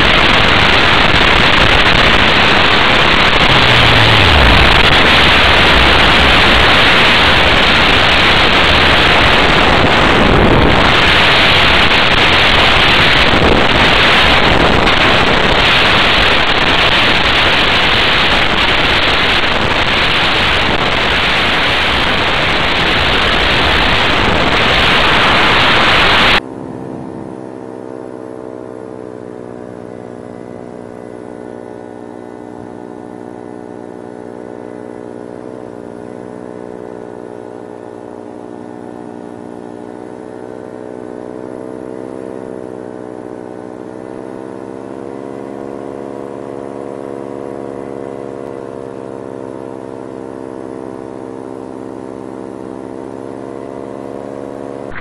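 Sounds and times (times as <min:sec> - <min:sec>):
loud wind noise: 0:00.0 - 0:27.3
engine running steadily: 0:00.0 - 0:55.0.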